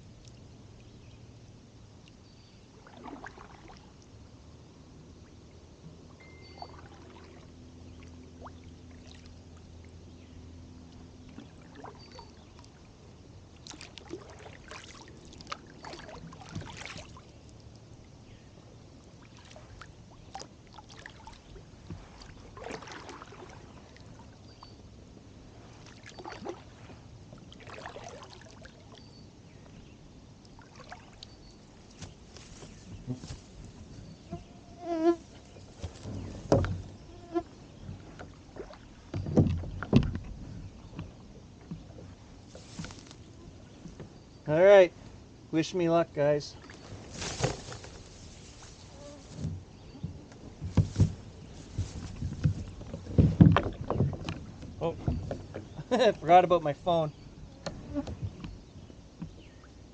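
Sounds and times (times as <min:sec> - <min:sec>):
paddle strokes splashing water: 0:02.8 - 0:04.0, 0:13.6 - 0:17.4, 0:19.1 - 0:24.4, 0:25.6 - 0:29.0, 0:30.6 - 0:34.5, 0:37.7 - 0:44.0.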